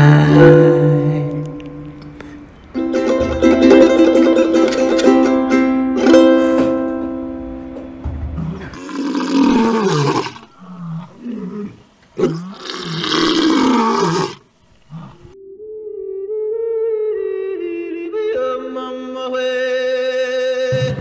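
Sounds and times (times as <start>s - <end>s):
ukulele chord strummed: 0.0s - 8.4s
lion roaring: 8.3s - 15.4s.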